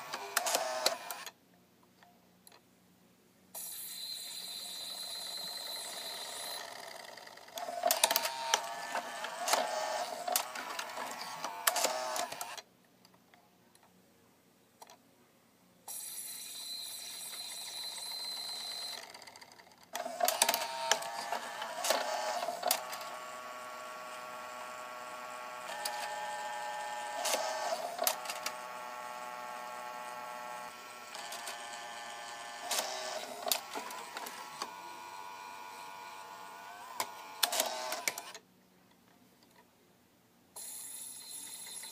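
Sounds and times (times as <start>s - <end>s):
gears clicking: 3.6s - 12.6s
small motors whirring: 3.6s - 12.6s, 15.9s - 38.4s.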